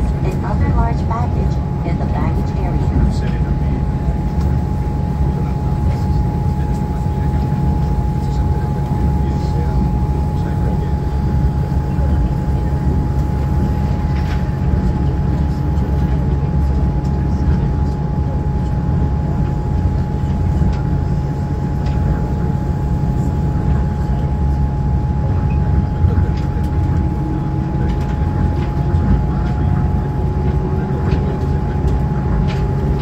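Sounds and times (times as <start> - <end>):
constant whine: 0.0 - 33.0
train low rumble: 0.0 - 33.0.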